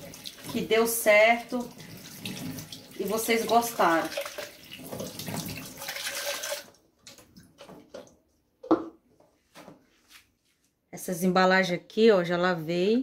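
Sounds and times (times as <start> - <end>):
tap water running into sink: 0.0 - 8.8.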